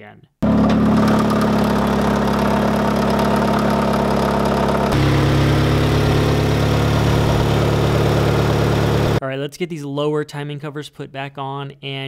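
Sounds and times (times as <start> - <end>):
car engine idling: 0.4 - 9.2.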